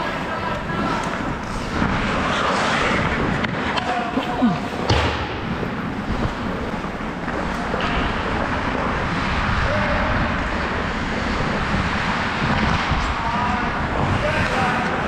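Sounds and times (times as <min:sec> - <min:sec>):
skate blades on ice: 0:00.0 - 0:15.0
wind on microphone: 0:00.0 - 0:15.0.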